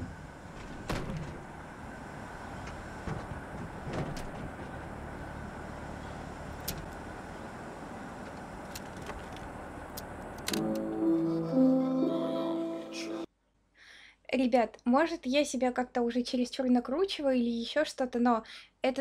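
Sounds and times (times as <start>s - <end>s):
low rumbling ambience: 0.0s - 13.3s.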